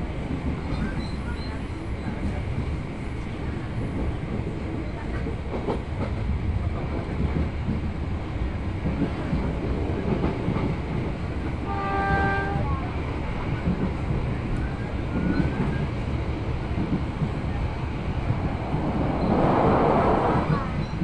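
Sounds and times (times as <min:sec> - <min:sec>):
train rumbling on rails: 0:00.0 - 0:21.0
train horn: 0:11.6 - 0:12.8
rushing swell: 0:18.0 - 0:21.0.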